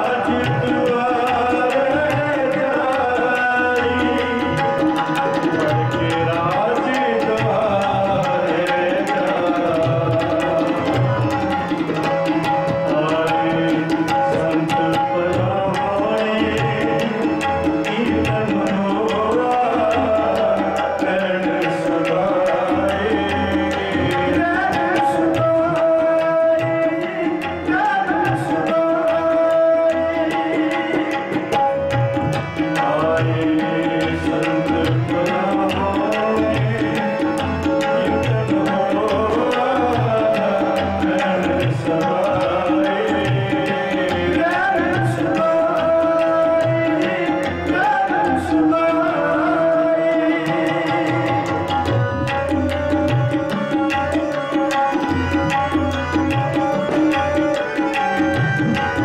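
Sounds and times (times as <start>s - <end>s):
person singing: 0.0s - 11.4s, 12.1s - 52.0s
harmonium notes: 0.0s - 59.0s
tabla playing a steady rhythm: 0.0s - 59.0s.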